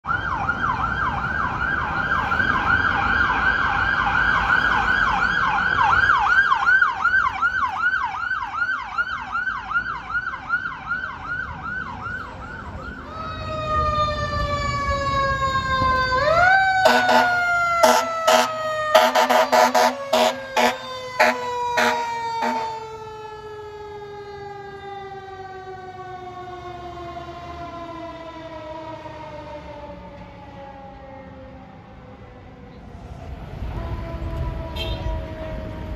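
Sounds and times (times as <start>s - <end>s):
electronic siren yelping: 11.0s - 24.6s
heavy truck engine rumbling: 11.3s - 27.0s
short horn blasts: 16.8s - 22.8s, 34.8s - 35.1s.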